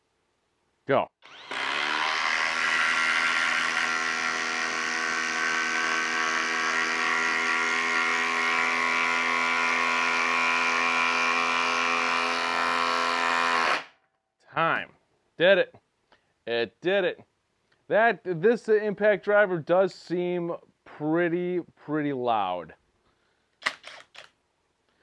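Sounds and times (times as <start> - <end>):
impact driver rattling: 23.6 - 24.3.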